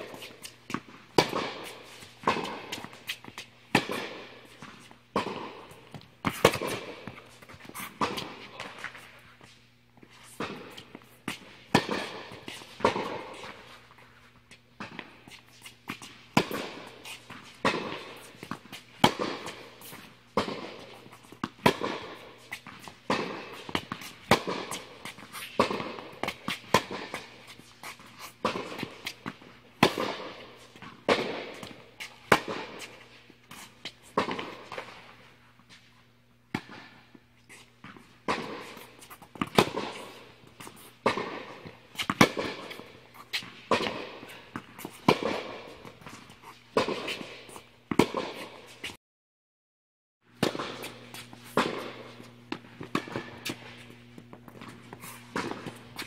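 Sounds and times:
tennis balls struck by rackets: 0.0 - 9.6, 10.3 - 35.8, 36.5 - 49.0, 50.3 - 56.0
tennis balls bouncing on court: 0.0 - 35.8, 36.5 - 48.9, 50.3 - 56.0
steady low hum: 50.3 - 56.0.

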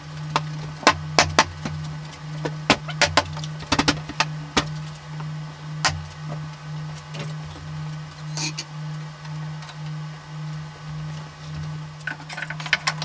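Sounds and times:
low hum: 0.0 - 13.0
wooden panels knocking: 2.7 - 4.7.

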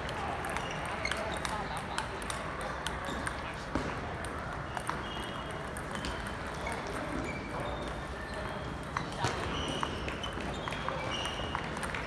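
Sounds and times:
hum of large hall: 0.0 - 12.0
table tennis balls clicking: 0.1 - 3.4.

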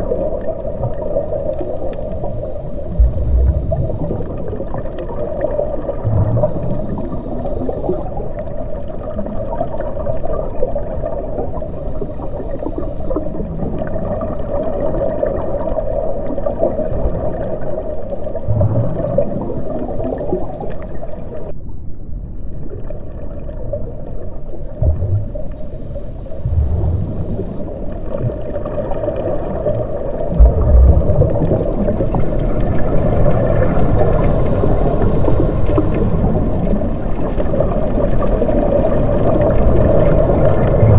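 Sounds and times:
muffled underwater rumble: 0.0 - 40.9
deep low thumps: 2.9 - 4.3, 6.0 - 6.8, 18.5 - 19.2, 24.8 - 28.4, 30.3 - 32.0.

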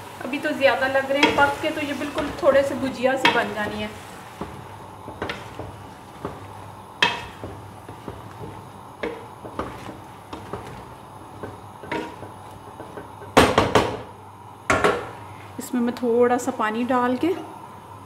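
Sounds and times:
wooden spatula stirring in pot: 0.1 - 13.9
spatula knocking against pot: 1.2 - 3.8, 4.4 - 14.1.

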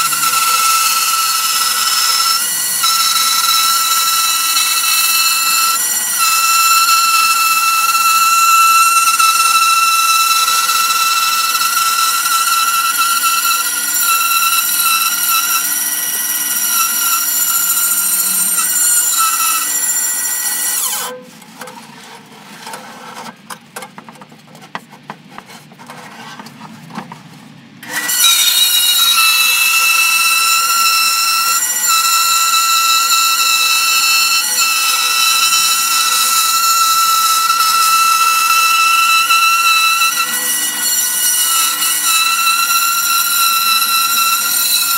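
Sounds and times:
bandsaw cutting wood: 0.0 - 21.3, 27.8 - 44.9
wooden board knocking and rubbing: 23.2 - 27.3.

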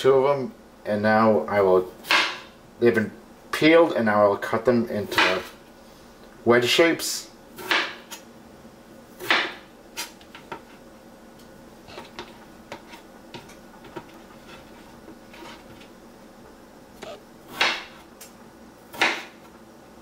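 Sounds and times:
knife cutting potatoes on board: 5.0 - 5.6, 11.9 - 15.9, 17.0 - 18.1, 18.9 - 19.4.

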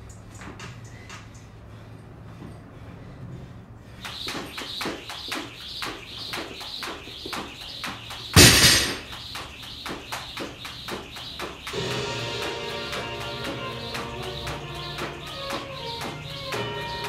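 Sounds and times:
jump rope slapping floor: 4.0 - 17.0
loud thump: 8.4 - 9.1.

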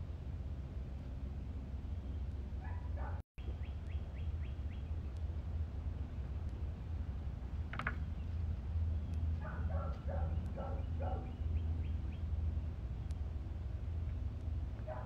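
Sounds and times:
steady low hum: 0.0 - 15.0
dog barking: 2.6 - 3.2, 9.4 - 11.4, 14.8 - 15.0.

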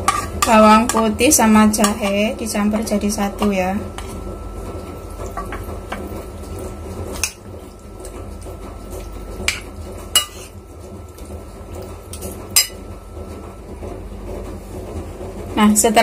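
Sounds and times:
utensil scraping and clinking bowl: 0.0 - 2.2, 3.9 - 4.2, 5.1 - 12.9.

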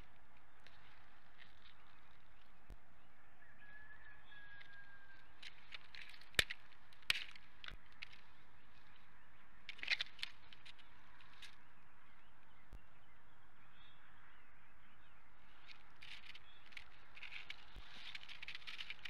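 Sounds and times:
steady outdoor hiss: 0.0 - 19.0
twig snaps and knocks: 5.4 - 8.8, 9.6 - 11.6, 15.6 - 19.0.

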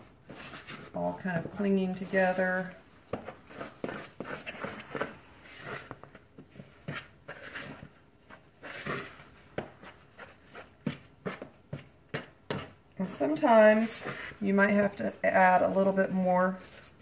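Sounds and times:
fork scraping a bowl: 1.6 - 6.1.

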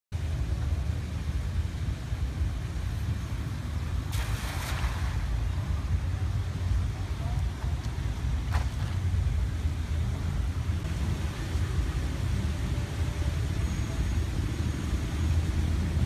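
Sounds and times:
wind rumbling on microphone: 0.2 - 16.0
net splashing onto water: 4.1 - 5.4.

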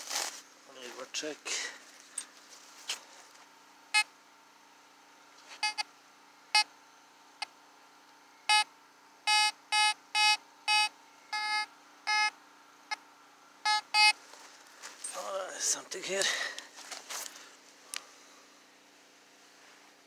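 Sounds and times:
metal detector beeps: 5.6 - 5.8, 8.5 - 8.7, 9.3 - 12.3, 13.7 - 14.2.

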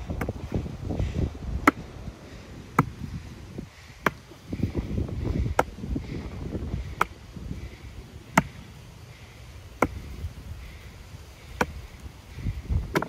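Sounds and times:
sledgehammer striking wooden stake: 1.6 - 1.8, 2.7 - 3.0.

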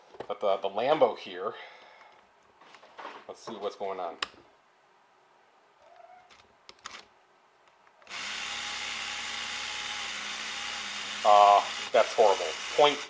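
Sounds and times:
electric motor whirring: 8.0 - 13.0.

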